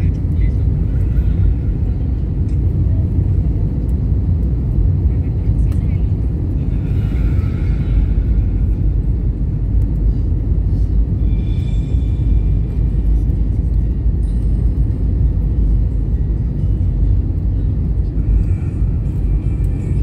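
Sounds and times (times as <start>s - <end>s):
airplane engines rumbling: 0.0s - 20.0s
rushing air: 6.5s - 14.2s.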